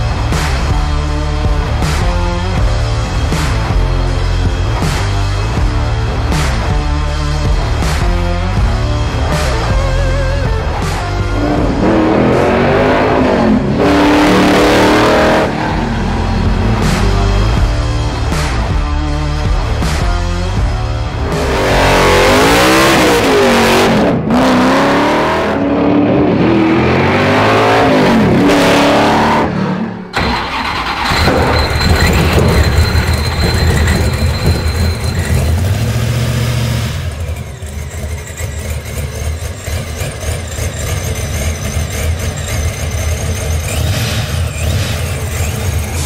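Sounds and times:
car engine revving: 0:00.0 - 0:46.0
car engine idling rumble: 0:30.2 - 0:46.0.

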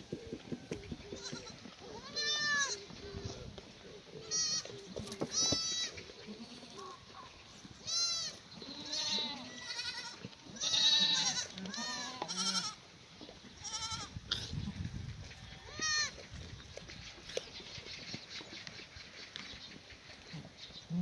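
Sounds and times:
goats bleating: 0:01.1 - 0:03.0, 0:04.2 - 0:07.2, 0:07.8 - 0:12.9, 0:13.6 - 0:14.5, 0:15.6 - 0:16.2.

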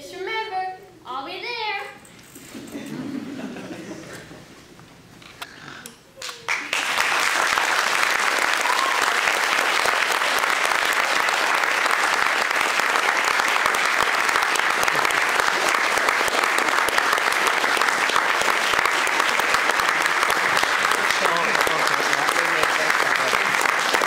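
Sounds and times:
audience applauding: 0:06.2 - 0:24.0.

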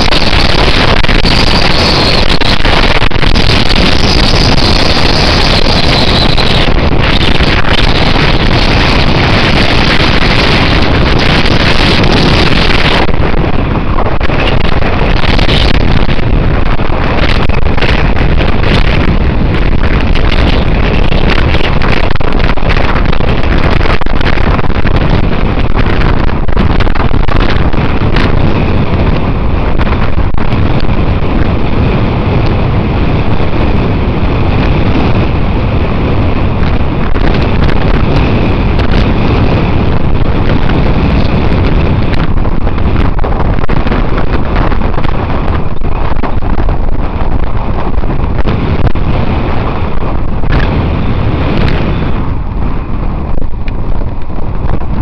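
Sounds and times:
wind buffeting microphone: 0:00.0 - 0:55.0.

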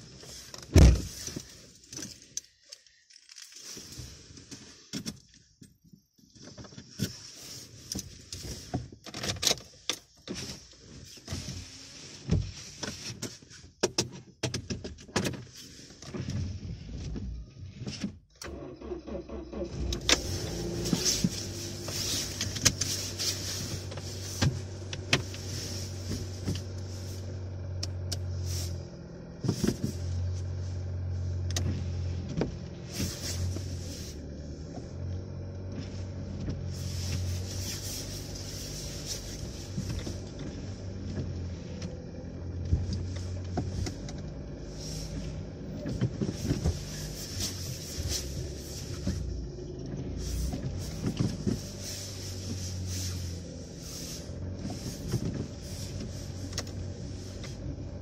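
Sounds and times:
low engine hum: 0:15.7 - 0:58.0
wiper blades sweeping snow: 0:18.8 - 0:41.8, 0:42.5 - 0:58.0
wiper motor humming: 0:19.8 - 0:58.0.

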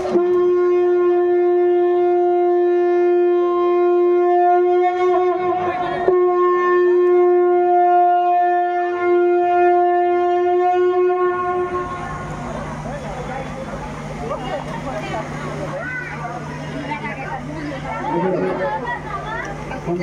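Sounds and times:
conch shell blown: 0:00.0 - 0:12.3.

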